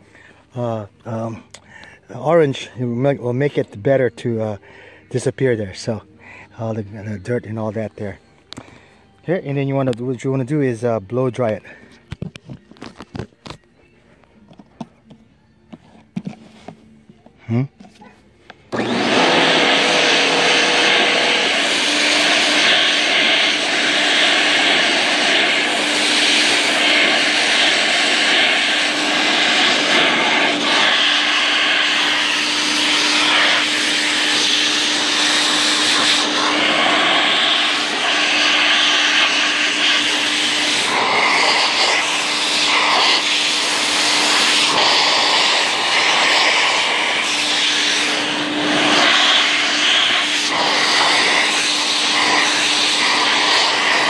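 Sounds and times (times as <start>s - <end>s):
electric blower rushing air: 18.5s - 54.0s.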